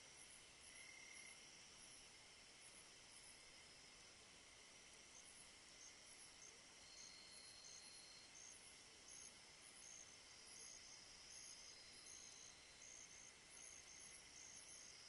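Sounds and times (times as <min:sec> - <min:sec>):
high insect hiss: 0:00.0 - 0:15.0
insects chirping: 0:00.0 - 0:15.0
insect trill: 0:00.1 - 0:04.0, 0:04.7 - 0:15.0.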